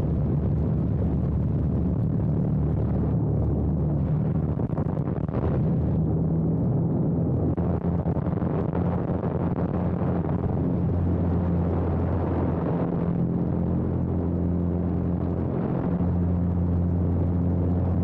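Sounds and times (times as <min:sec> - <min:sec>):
plane engine drone: 0:00.0 - 0:18.0.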